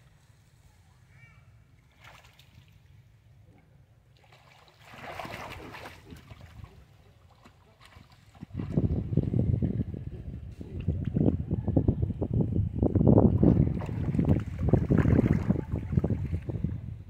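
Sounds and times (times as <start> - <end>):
monkeys splashing in water: 4.2 - 9.0.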